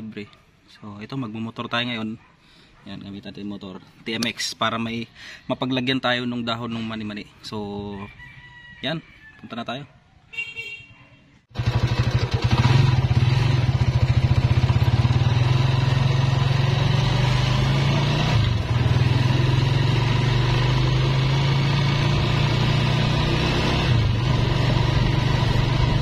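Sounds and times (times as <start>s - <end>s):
motorcycle engine running: 11.5s - 26.0s.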